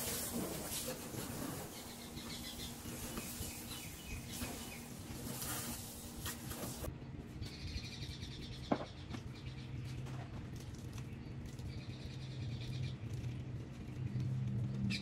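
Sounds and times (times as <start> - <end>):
hose water splashing on car: 0.0 - 6.9
birds chirping: 0.1 - 6.0.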